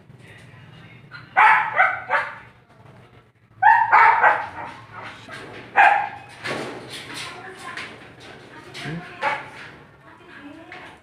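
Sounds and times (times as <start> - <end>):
dogs barking: 1.1 - 2.5, 3.6 - 6.4, 9.1 - 9.6.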